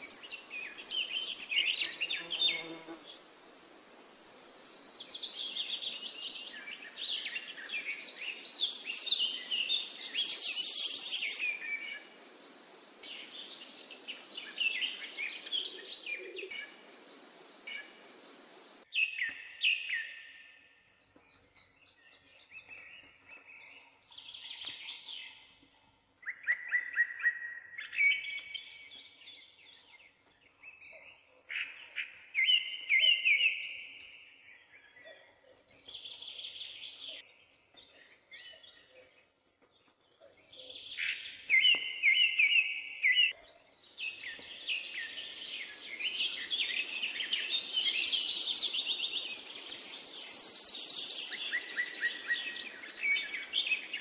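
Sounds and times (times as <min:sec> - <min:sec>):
songbirds singing trilled phrases: 0:00.0 - 0:03.0, 0:04.1 - 0:20.5, 0:26.2 - 0:54.0
steady hiss: 0:16.6 - 0:18.8.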